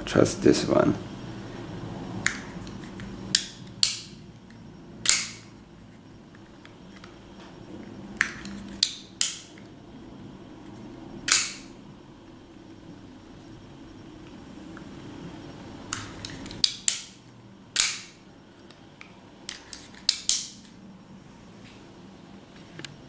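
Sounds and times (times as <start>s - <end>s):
knife mechanism clicking: 5.0s - 5.5s
loud metallic snaps: 5.0s - 5.5s, 8.2s - 9.5s, 11.3s - 11.7s, 17.8s - 18.2s.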